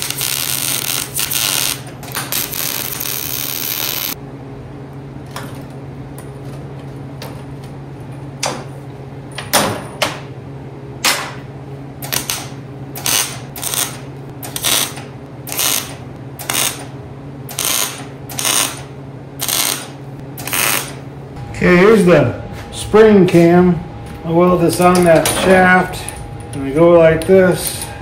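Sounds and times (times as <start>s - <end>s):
welding arc crackle: 0.0s - 4.2s, 12.0s - 21.0s
welder low hum: 0.0s - 4.7s, 11.7s - 28.0s.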